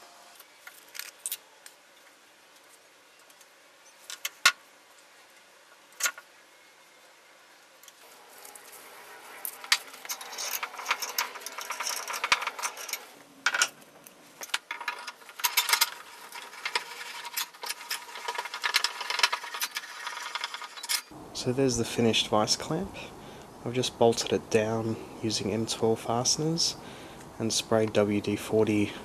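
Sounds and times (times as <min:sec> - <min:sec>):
metal vice clicking and rattling: 0:09.6 - 0:13.8, 0:14.4 - 0:21.1.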